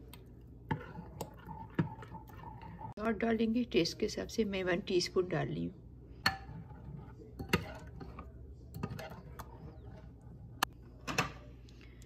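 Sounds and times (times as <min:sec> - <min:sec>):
spoon stirring thick batter: 0:00.0 - 0:04.0, 0:06.2 - 0:10.8.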